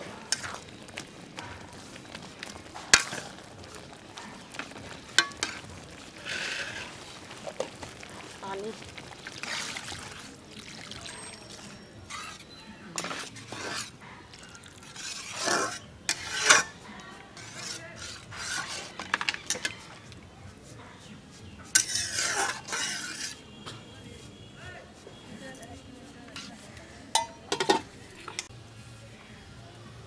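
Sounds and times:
water pouring into curry: 0:00.2 - 0:12.4, 0:13.0 - 0:16.3
metal spatula scraping pan: 0:02.4 - 0:07.7, 0:12.0 - 0:20.0, 0:21.6 - 0:23.5, 0:26.1 - 0:28.5.

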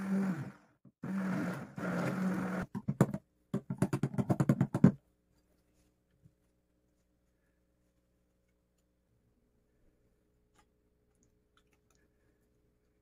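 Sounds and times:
immersion blender motor: 0:00.0 - 0:02.7.

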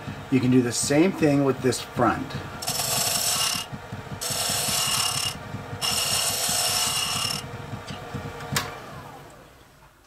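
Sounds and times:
lathe tool scraping spinning wood: 0:02.5 - 0:08.4.

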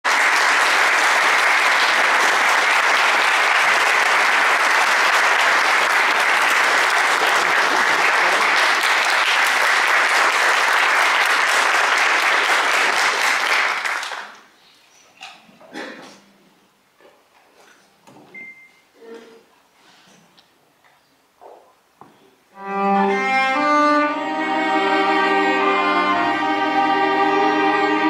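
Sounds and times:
audience applauding: 0:00.0 - 0:14.5.

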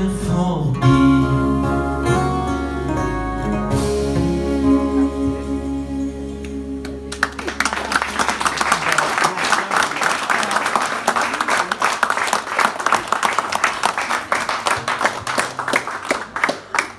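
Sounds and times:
audience applause: 0:07.0 - 0:16.9.

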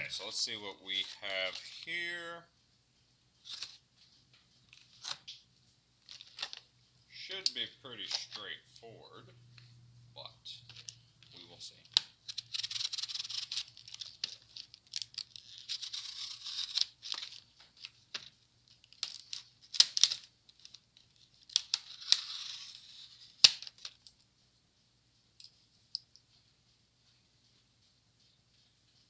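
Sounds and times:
plastic package crinkling and snapping: 0:06.0 - 0:06.7, 0:10.7 - 0:24.1.

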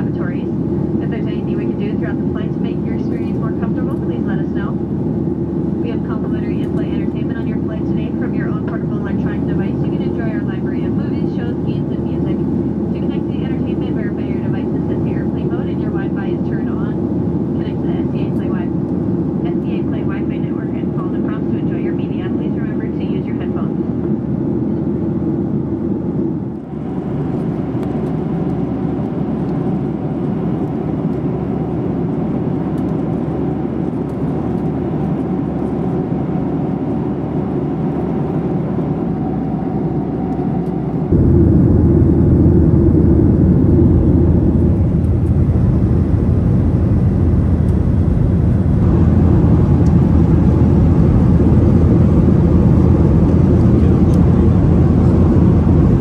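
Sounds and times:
jet engine drone: 0:00.0 - 0:56.0
airflow rushing: 0:34.8 - 0:56.0.

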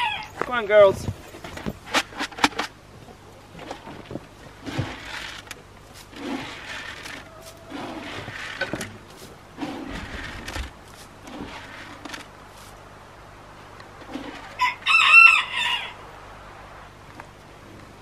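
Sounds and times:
loud drawn-out chicken call: 0:00.0 - 0:00.4, 0:06.4 - 0:08.6, 0:14.2 - 0:16.0
chickens clucking: 0:06.5 - 0:09.3.

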